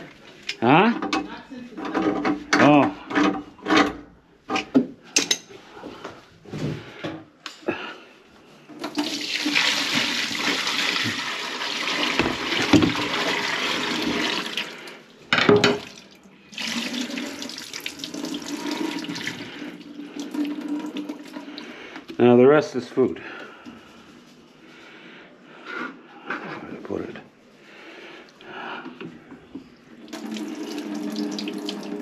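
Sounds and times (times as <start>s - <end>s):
faucet running into sink: 8.8s - 14.8s, 15.6s - 21.5s, 30.0s - 32.0s.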